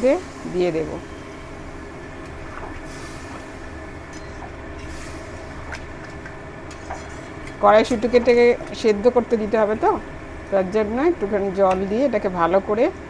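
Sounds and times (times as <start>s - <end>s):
stove and pot hissing: 0.0s - 10.0s.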